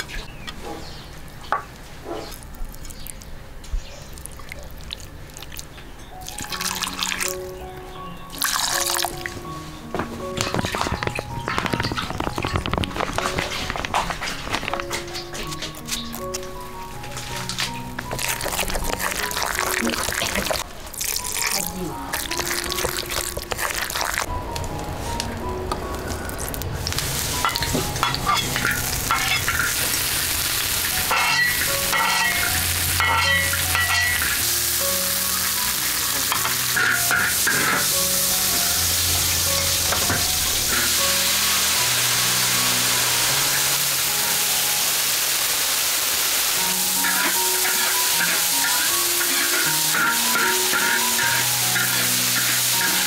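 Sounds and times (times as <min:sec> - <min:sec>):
hot oil sizzling in a wok: 0:17.1 - 0:24.3, 0:26.8 - 0:53.0
metal spatula scraping a wok: 0:30.8 - 0:34.4, 0:35.3 - 0:38.0, 0:46.7 - 0:53.0.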